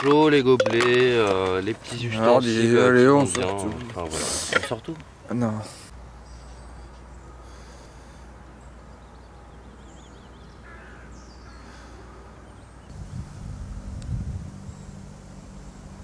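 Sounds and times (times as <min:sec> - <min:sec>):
birds chirping and trilling: 0:00.0 - 0:12.9
steady low rumble: 0:12.9 - 0:16.0
uneven low rumble with thumps: 0:12.9 - 0:16.0.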